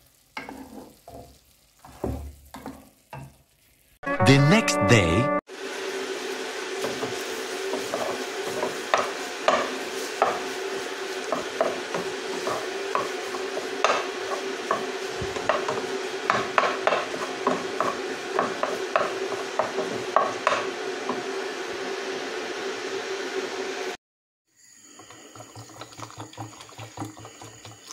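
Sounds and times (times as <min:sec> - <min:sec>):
mince and onions sizzling: 0:00.0 - 0:04.1, 0:05.5 - 0:27.9
wooden spatula scraping pan: 0:00.4 - 0:02.9, 0:06.8 - 0:21.3.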